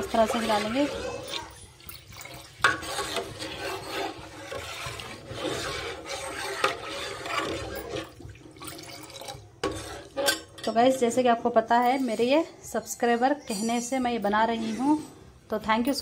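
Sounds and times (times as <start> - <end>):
spoon scraping cooking pot: 0.0 - 11.1, 13.6 - 16.0.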